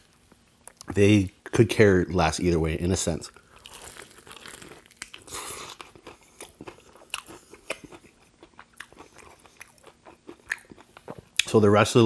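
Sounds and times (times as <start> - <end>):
chewing with crisp crunches: 3.3 - 11.6
crunchy fried chicken bite: 3.6 - 11.5.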